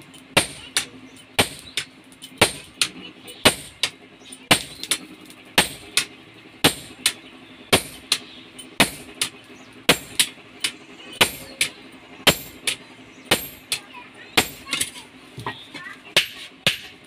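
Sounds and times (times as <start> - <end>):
sledgehammer striking metal: 0.4 - 13.8, 14.4 - 15.0, 16.2 - 17.0.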